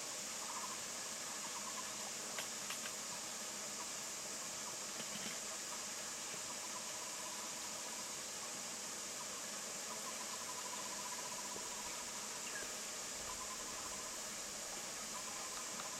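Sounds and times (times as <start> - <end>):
insect chorus hiss: 0.0 - 15.9
rapid pulsed animal call: 9.9 - 14.2.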